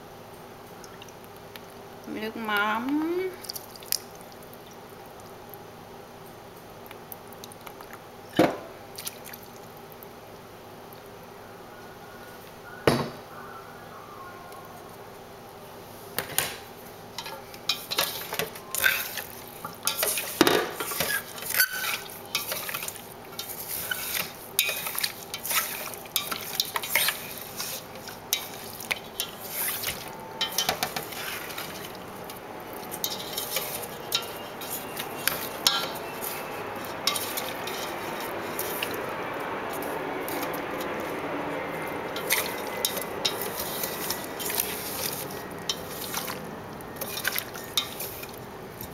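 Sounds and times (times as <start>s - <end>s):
wet mixing noise: 0.7s - 5.7s, 8.8s - 10.2s, 17.2s - 48.9s.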